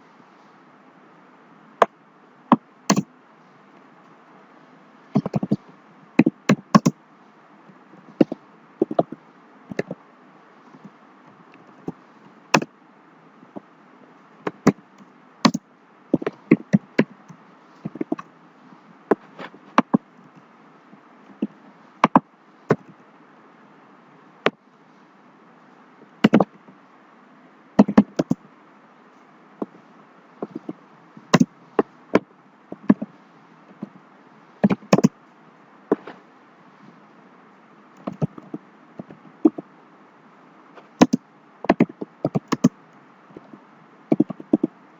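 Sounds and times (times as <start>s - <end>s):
keyboard keystroke clicks: 6.2s - 6.9s, 27.8s - 28.4s, 41.0s - 42.7s.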